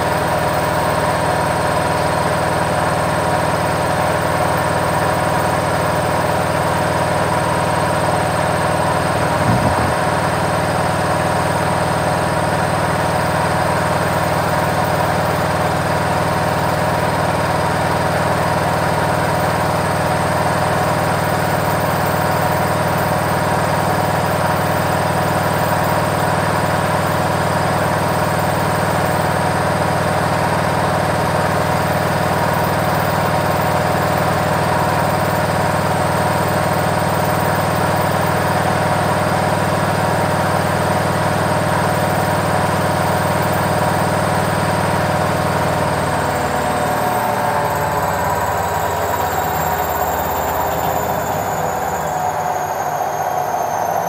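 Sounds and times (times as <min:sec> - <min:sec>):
washing machine spinning: 0:26.0 - 0:54.0.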